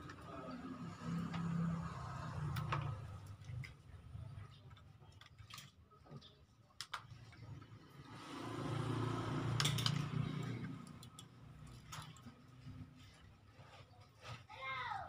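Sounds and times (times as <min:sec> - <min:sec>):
engine passing by: 0:00.0 - 0:03.4, 0:07.6 - 0:13.2.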